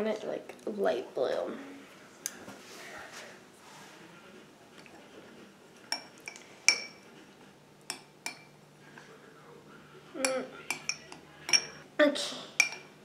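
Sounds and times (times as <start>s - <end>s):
spoon clinking against bowl: 5.9s - 7.0s, 7.9s - 8.5s, 10.2s - 11.8s, 12.6s - 13.0s.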